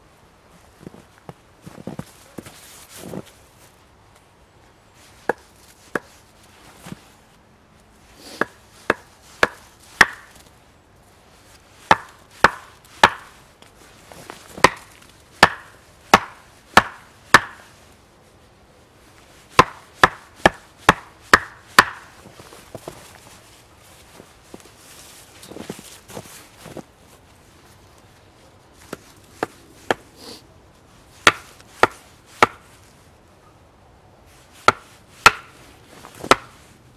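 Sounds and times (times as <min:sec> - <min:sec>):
axe chopping wooden stake: 0:08.4 - 0:10.3, 0:11.9 - 0:13.4, 0:14.6 - 0:17.6, 0:19.6 - 0:22.1, 0:31.2 - 0:32.7, 0:34.6 - 0:35.6, 0:36.2 - 0:36.6.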